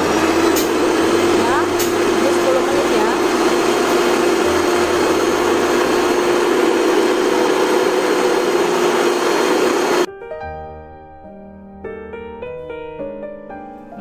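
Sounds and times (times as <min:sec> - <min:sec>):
electric mixer motor whining: 0:00.0 - 0:10.1
soft piano music: 0:10.0 - 0:14.0.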